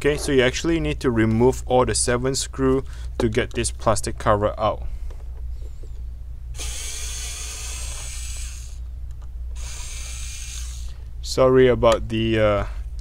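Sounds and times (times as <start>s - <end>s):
electric screwdriver whirring: 6.6s - 8.8s, 9.6s - 10.9s.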